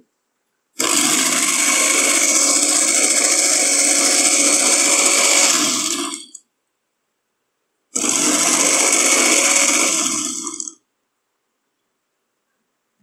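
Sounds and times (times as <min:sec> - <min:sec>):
blender running: 0:00.8 - 0:06.4, 0:08.0 - 0:10.8.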